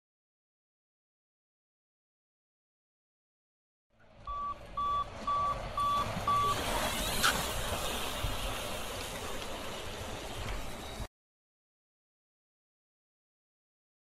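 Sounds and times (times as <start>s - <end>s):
bike tyres rumbling on asphalt: 4.0s - 11.1s
short electronic beeps: 4.3s - 7.3s.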